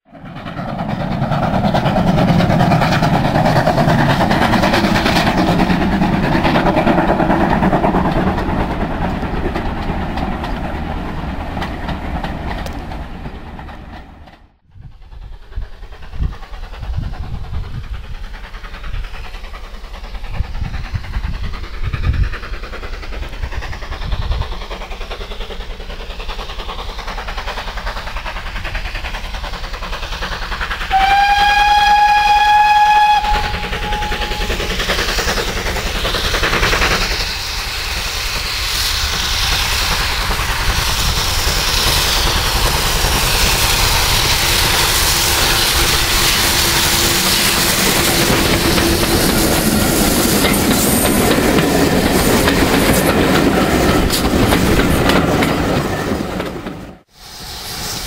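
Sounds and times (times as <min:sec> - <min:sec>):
steam locomotive exhaust beats: 0:00.0 - 0:58.0
steady rushing noise: 0:33.3 - 0:55.9.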